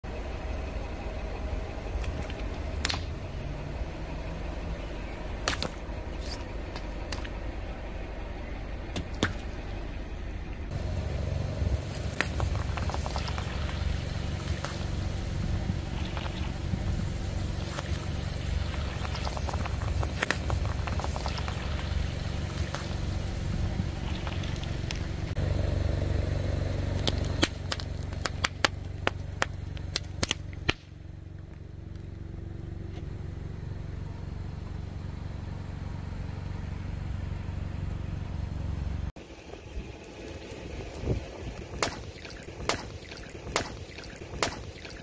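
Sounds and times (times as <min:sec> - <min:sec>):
car engine rumble: 0:00.0 - 0:45.0
gloves bursting with pops: 0:11.8 - 0:25.3, 0:27.0 - 0:30.9, 0:41.6 - 0:45.0
tyre crushing water beads: 0:11.9 - 0:15.0, 0:17.6 - 0:23.1.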